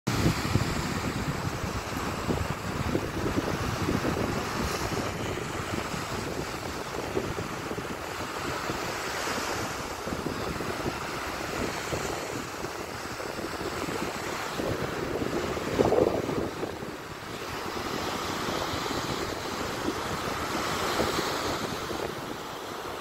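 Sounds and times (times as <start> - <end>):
waves breaking on sandy shore: 0.1 - 23.0
wind buffeting microphone: 0.1 - 23.0.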